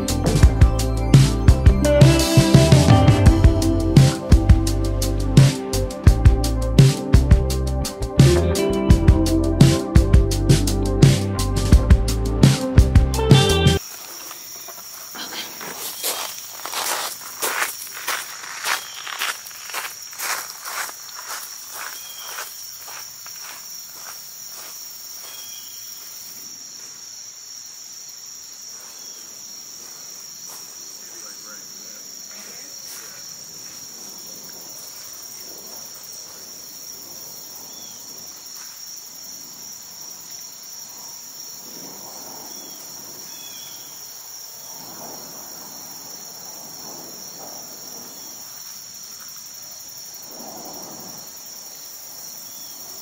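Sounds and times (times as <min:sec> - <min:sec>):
insects chirping in trees: 0:00.0 - 0:53.0
footsteps on gravel: 0:13.8 - 0:25.6.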